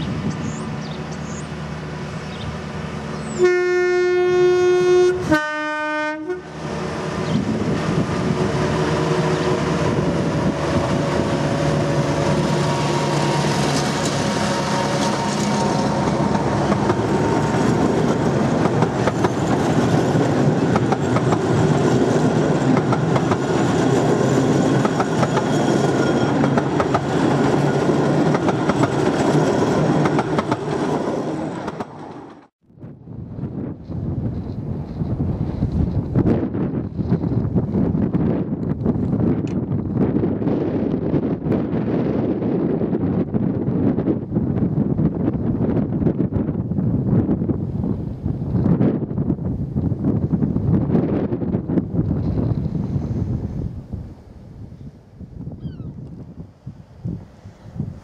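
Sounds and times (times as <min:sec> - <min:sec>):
locomotive horn blasts: 0:03.3 - 0:06.6
train wheels clacking on rail joints: 0:12.5 - 0:32.5.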